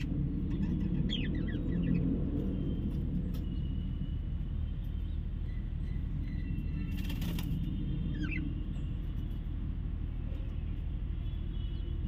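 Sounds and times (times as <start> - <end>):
low background rumble: 0.0 - 4.6.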